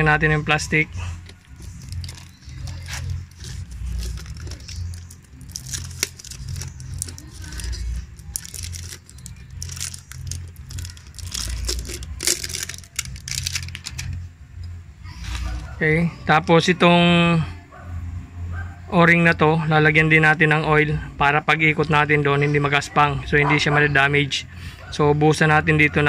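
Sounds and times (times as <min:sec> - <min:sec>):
plastic wrapping crinkling and tearing: 0:01.2 - 0:14.2.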